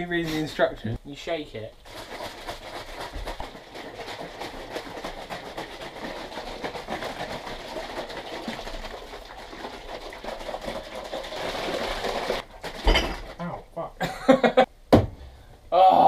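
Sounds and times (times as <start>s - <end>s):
shaker bottles sloshing rattle: 1.8s - 13.4s.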